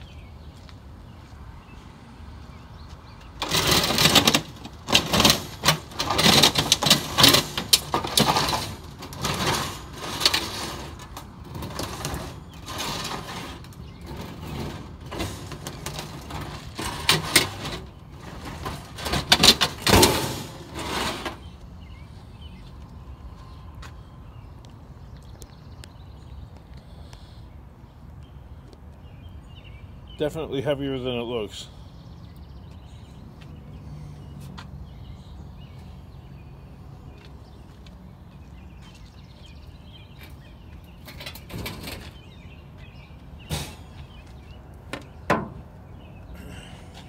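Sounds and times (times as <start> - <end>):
metal clanks and bangs: 3.4 - 21.4, 43.4 - 44.0
metal scraping on metal: 3.4 - 21.5.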